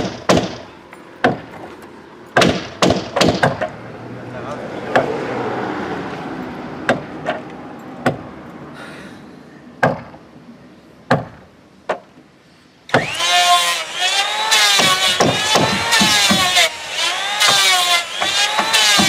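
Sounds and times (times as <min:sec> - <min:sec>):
electric hand planer running: 0:13.0 - 0:19.0.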